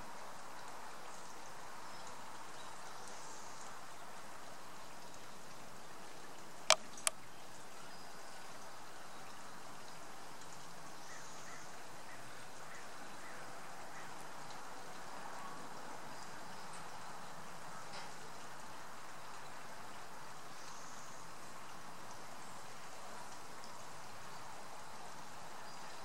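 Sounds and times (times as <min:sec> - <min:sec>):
water trickling: 0:00.0 - 0:26.0
sharp clicks: 0:06.6 - 0:07.2.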